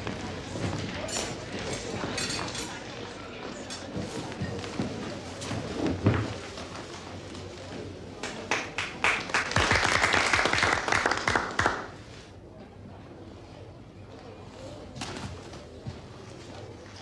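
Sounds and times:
audience applauding: 8.2 - 12.0.

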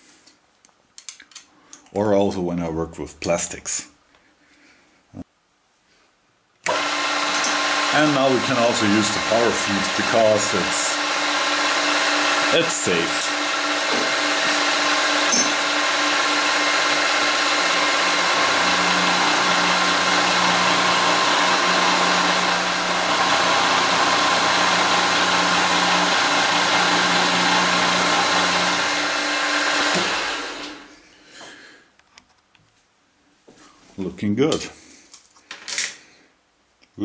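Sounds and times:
milling machine whine: 6.7 - 30.9.

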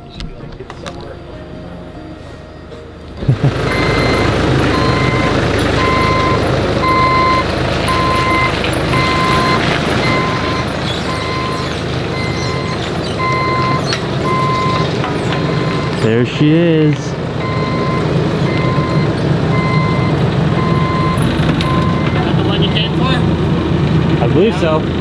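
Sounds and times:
forklift engine running: 0.0 - 25.0
warning beeper beeping: 3.2 - 16.4, 17.4 - 23.0.

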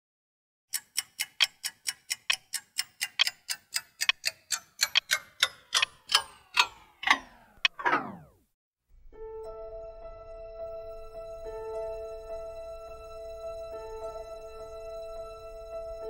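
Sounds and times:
sharp ticking: 0.7 - 8.3.

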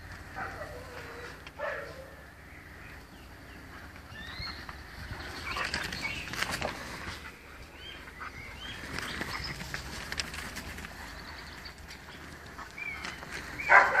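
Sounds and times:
light pattering paws: 2.9 - 14.0
puppies squeaking and yipping: 4.1 - 6.7.

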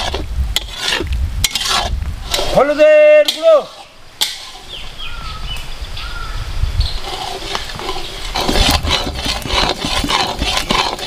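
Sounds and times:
metal spatula scraping: 0.0 - 5.0, 6.9 - 11.0
paste frying in oil: 7.0 - 11.0.

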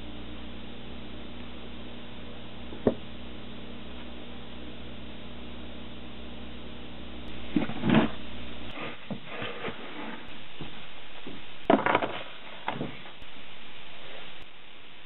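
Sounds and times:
low hum: 0.0 - 15.0
gloved hands rubbing wood: 7.5 - 11.4
plastic tubs knocking and rustling: 10.6 - 13.2.

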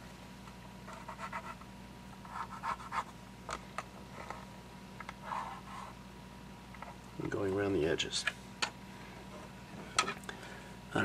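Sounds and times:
pencil scratching: 0.9 - 1.6, 2.3 - 3.1.

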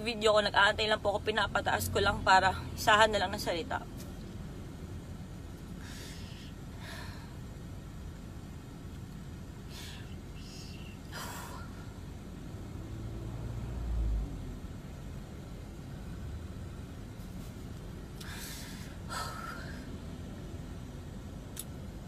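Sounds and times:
low background hum: 0.0 - 22.0
person breathing sharply: 5.8 - 7.5, 9.6 - 11.8, 18.2 - 20.0.

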